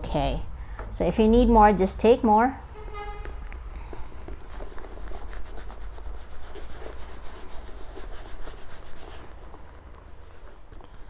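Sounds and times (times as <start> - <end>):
rubbing strokes on handbag: 4.1 - 11.0.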